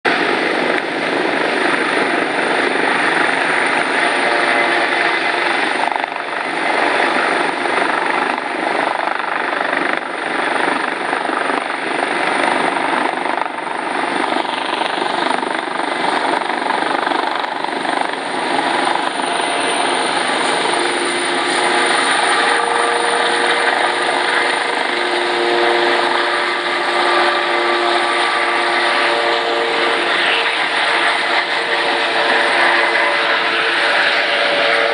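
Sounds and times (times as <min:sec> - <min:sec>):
helicopter turbine and rotor noise: 0:00.0 - 0:34.9
steady tones: 0:00.1 - 0:34.9.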